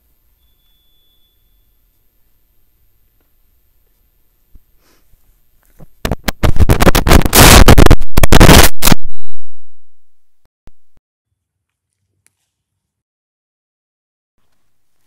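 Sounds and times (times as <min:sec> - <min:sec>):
scratching on microphone: 0:05.7 - 0:09.0.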